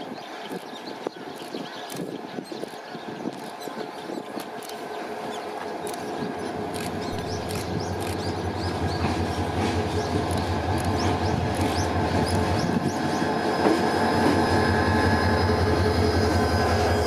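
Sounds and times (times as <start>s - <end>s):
wheel and rail noise: 0.0s - 17.0s
diesel locomotive engine drone: 3.6s - 17.0s.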